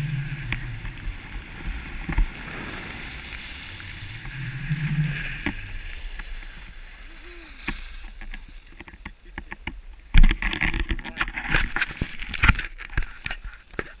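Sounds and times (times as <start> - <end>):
skis hissing over snow: 0.0 - 8.8
camera handling knocks and rustle: 8.8 - 13.9.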